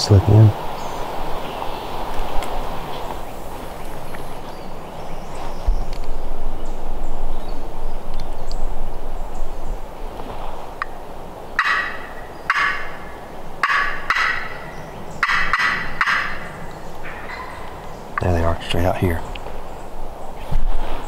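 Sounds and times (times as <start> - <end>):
wind noise on microphone: 0.0 - 11.4, 19.4 - 21.0
turkeys gobbling: 11.6 - 17.9.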